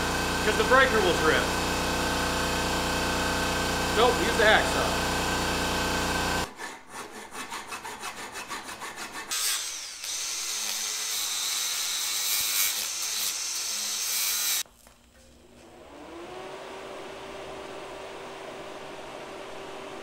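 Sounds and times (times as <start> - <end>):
air compressor running: 0.0 - 6.5
hacksaw cutting metal: 6.4 - 14.6
rotary tool cutoff wheel whining: 9.2 - 16.2.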